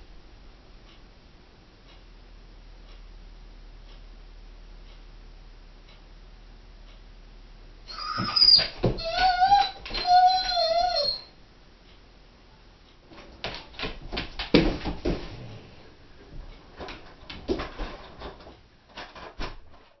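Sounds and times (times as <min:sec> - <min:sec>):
dog moving with knocks and scuffs: 0:08.0 - 0:11.2, 0:13.1 - 0:20.0.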